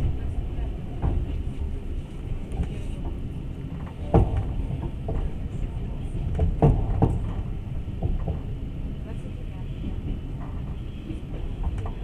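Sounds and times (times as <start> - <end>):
train carriage rumble: 0.0 - 12.0.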